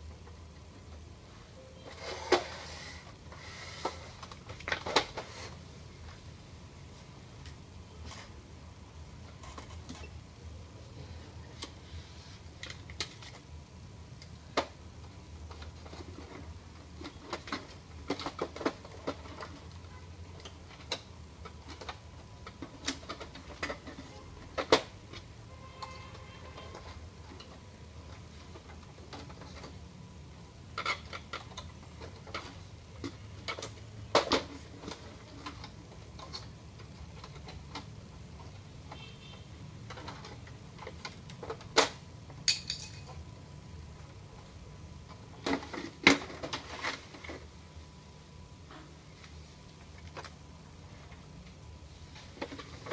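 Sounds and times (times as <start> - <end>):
plastic parts clicking and tapping: 14.2 - 29.8, 30.7 - 39.1, 39.8 - 43.0.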